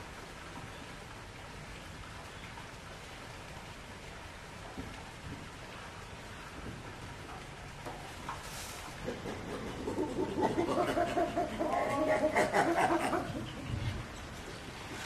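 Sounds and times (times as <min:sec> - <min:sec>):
chimpanzee panting calls: 0:08.7 - 0:14.8.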